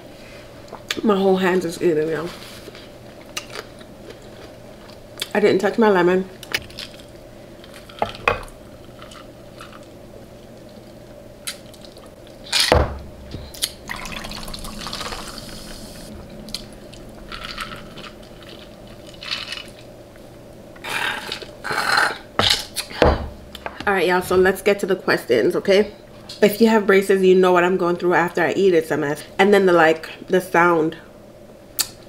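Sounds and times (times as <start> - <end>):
thump: 12.7 - 13.1.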